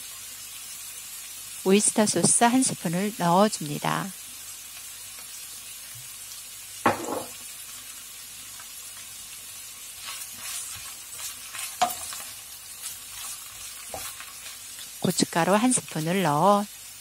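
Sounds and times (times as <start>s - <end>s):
food sizzling in a frying pan: 0.0s - 17.0s
wooden spatula scraping: 10.0s - 16.0s.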